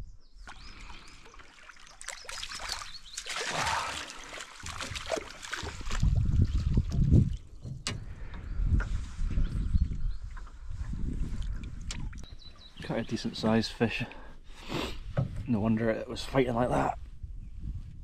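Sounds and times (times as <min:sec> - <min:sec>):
water splashing: 0:00.4 - 0:07.4.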